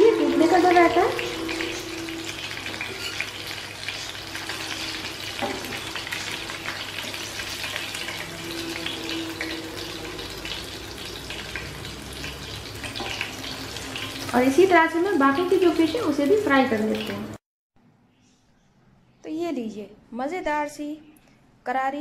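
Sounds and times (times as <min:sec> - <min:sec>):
fish sizzling in hot oil: 0:00.0 - 0:17.3.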